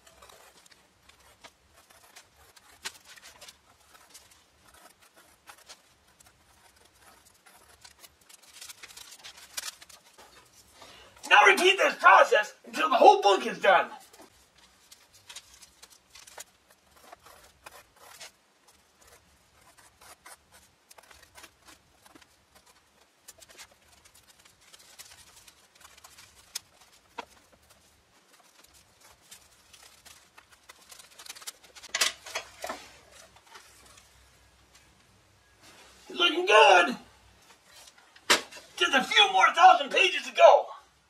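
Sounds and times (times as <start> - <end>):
scratchy paper cutting strokes: 0.0 - 10.7, 14.1 - 31.9
paper rustling: 0.0 - 11.8, 13.4 - 34.1.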